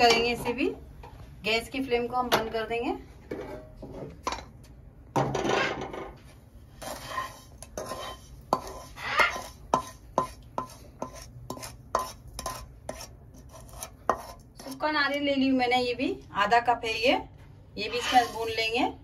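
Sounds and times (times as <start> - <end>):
metal spoon scraping a metal pan: 6.7 - 15.0, 17.8 - 18.9.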